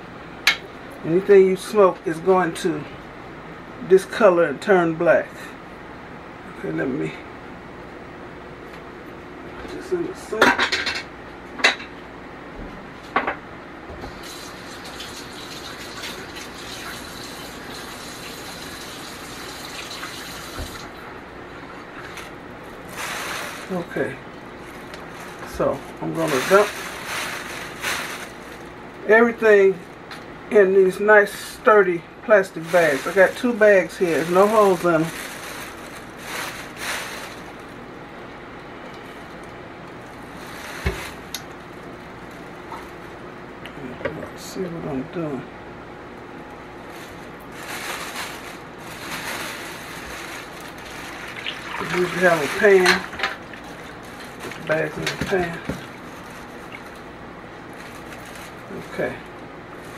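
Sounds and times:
plastic bags rustling: 21.7 - 30.0, 32.4 - 38.0, 39.0 - 43.2, 46.6 - 59.9.

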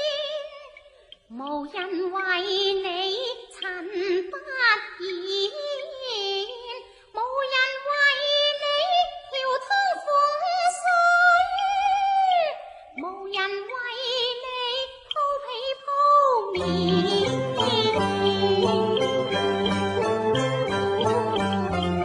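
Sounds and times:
opera singing with wavering notes: 0.0 - 22.0.

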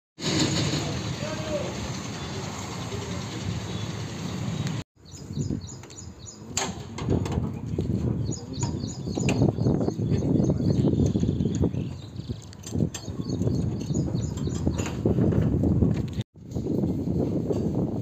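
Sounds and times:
outdoor background noise: 0.2 - 18.0
birds chirping: 1.2 - 6.6, 7.8 - 15.2.

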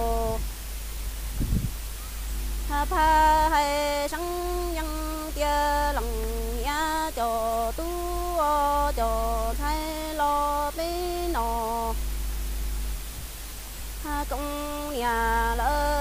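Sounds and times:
woman singing unaccompanied: 0.0 - 0.5, 2.6 - 12.5, 13.9 - 16.0.

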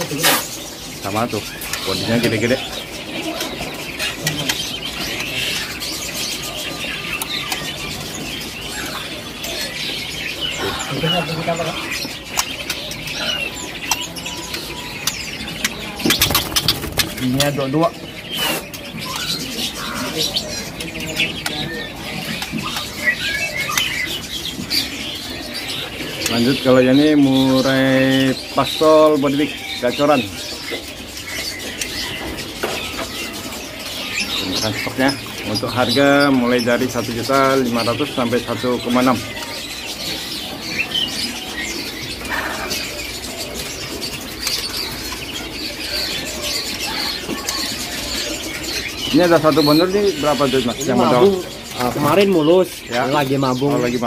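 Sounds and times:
wings flapping and rustling: 0.0 - 26.6
songbirds chirping: 0.0 - 54.0.

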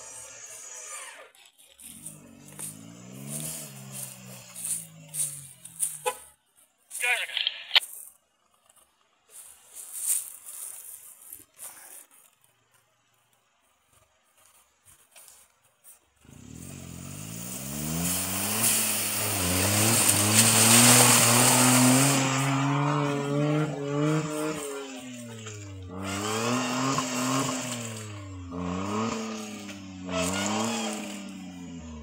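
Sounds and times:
wheels churning through mud: 0.0 - 32.0
engine revving hard: 1.9 - 6.0, 16.2 - 32.0.

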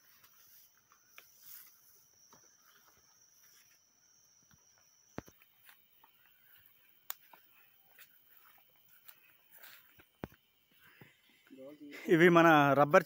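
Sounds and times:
footsteps on forest path: 0.0 - 11.7
high-pitched insect trill: 0.0 - 13.0.

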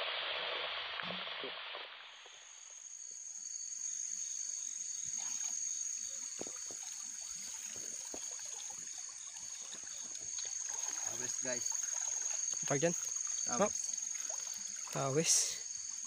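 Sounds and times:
water splashing and trickling: 4.6 - 16.0.

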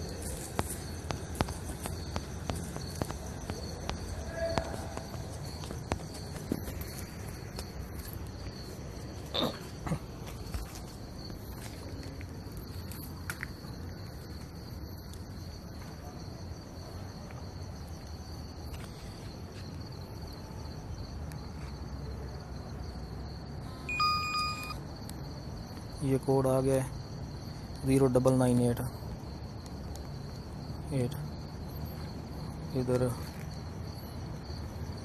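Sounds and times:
insects chirring: 0.0 - 35.0
background hiss: 23.7 - 25.0
phone alert tone: 23.8 - 24.8.

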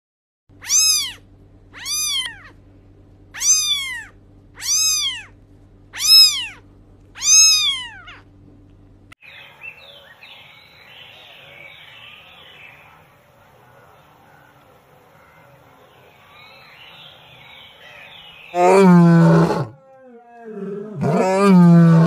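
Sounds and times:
faint outdoor chirping: 0.5 - 22.0
low steady hum: 0.5 - 22.0
cat meowing: 0.6 - 2.6, 3.3 - 6.6, 7.2 - 8.2.

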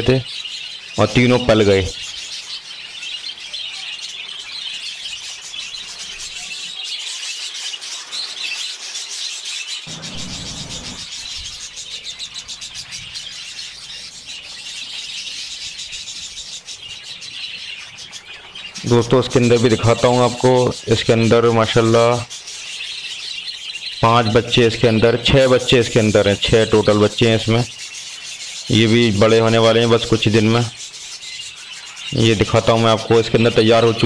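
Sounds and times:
budgerigars chattering and chirping: 0.0 - 34.0.

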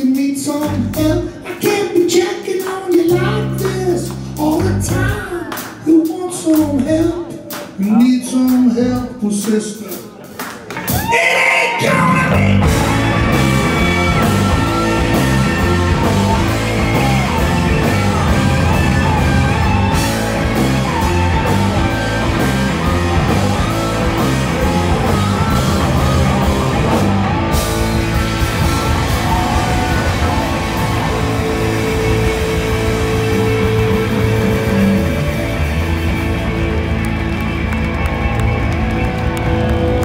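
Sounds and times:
bass guitar: 0.0 - 10.0, 10.7 - 40.0
drums: 0.0 - 40.0
electric guitars: 10.6 - 40.0.

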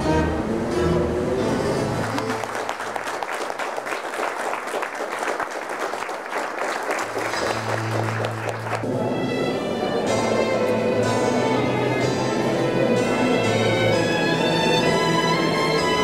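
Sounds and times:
orchestral string music: 0.0 - 3.0, 7.0 - 16.0
audience applauding: 1.9 - 9.0.

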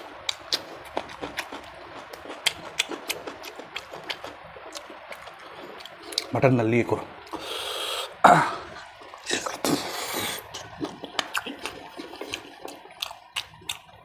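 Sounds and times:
wet chewing and lip-smacking: 0.0 - 6.4, 9.0 - 14.0
wet sucking slurps: 7.3 - 13.5.

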